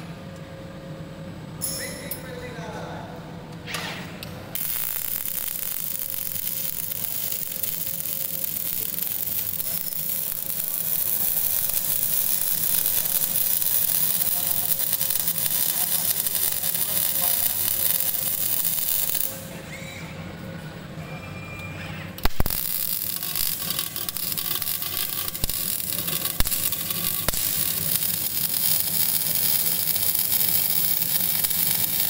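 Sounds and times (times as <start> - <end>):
welding arc striking: 3.8 - 19.5, 22.2 - 32.0
arc welding crackling hiss: 4.6 - 19.5, 22.2 - 32.0.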